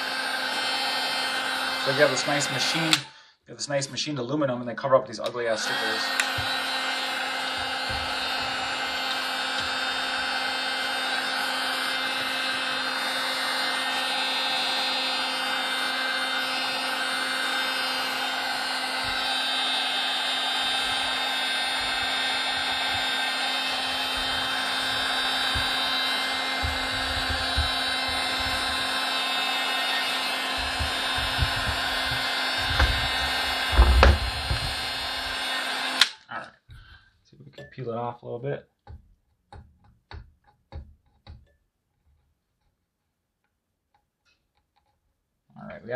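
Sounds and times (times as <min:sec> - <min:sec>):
heat gun fan humming: 0:00.0 - 0:03.1, 0:05.5 - 0:36.2.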